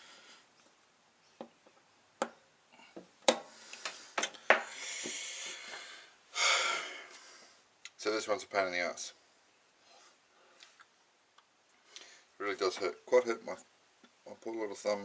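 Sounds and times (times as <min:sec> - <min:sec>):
soft hiss: 0:00.0 - 0:15.0.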